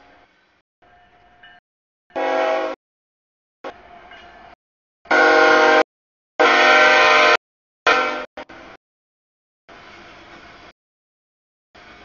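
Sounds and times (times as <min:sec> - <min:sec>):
locomotive air horn blasts: 0:02.1 - 0:02.8, 0:05.1 - 0:08.5.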